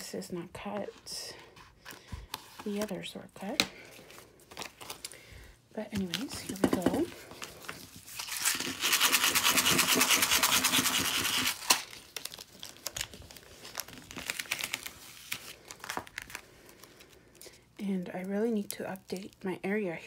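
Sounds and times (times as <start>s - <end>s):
plastic sheet crinkling: 3.8s - 17.5s
tape scrubbing: 7.2s - 12.0s.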